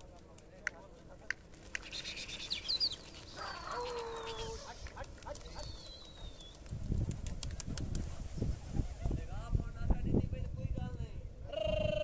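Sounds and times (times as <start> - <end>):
high bird chirps: 1.8 - 4.6.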